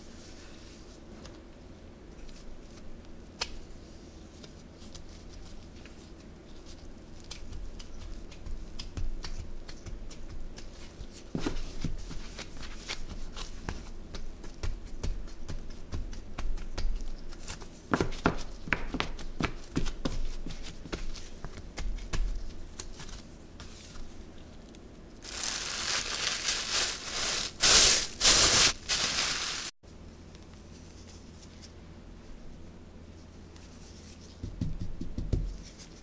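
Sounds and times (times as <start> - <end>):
soft pats of dough: 2.1 - 26.9
plastic gloves crinkling: 25.2 - 29.8.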